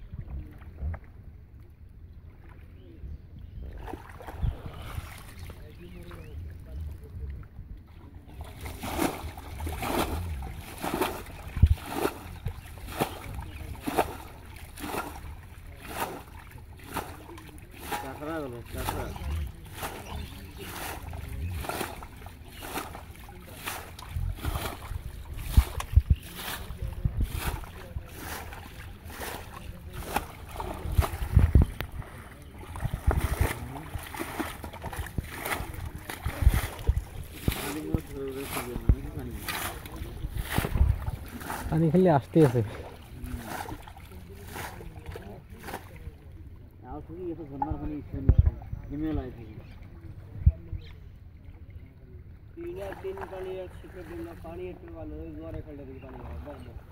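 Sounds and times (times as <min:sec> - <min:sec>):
water splashing from bailing bowl: 0:08.2 - 0:46.3.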